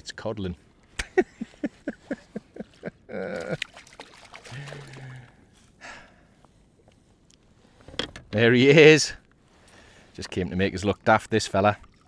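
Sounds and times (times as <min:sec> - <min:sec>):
water pouring and dripping: 0:10.2 - 0:12.0.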